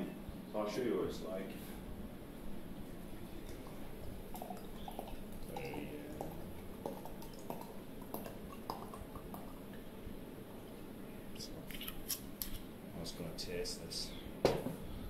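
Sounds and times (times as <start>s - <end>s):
wine pouring into a glass: 3.3s - 9.9s.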